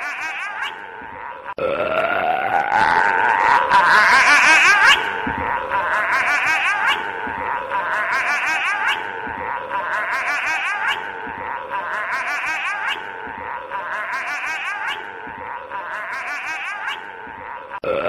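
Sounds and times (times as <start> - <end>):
warbling laugh-like voice: 0.0 - 18.0.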